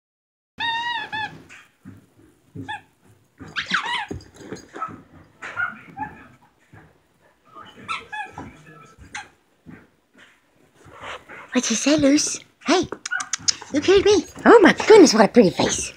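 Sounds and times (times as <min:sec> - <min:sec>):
dog whining: 0:00.6 - 0:01.7, 0:02.6 - 0:06.4, 0:07.7 - 0:08.5
dog barking: 0:04.8 - 0:06.4.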